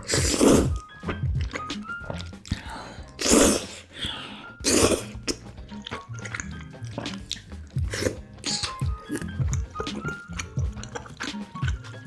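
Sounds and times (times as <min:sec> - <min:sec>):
person slurping noodles: 0:00.0 - 0:07.2, 0:07.8 - 0:08.7
background music: 0:00.0 - 0:12.0
wet mouth sounds: 0:00.0 - 0:12.0.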